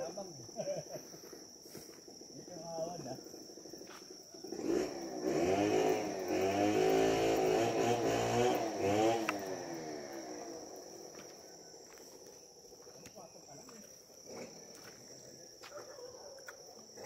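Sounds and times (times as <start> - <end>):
small engine revving: 4.4 - 11.4, 14.2 - 14.9.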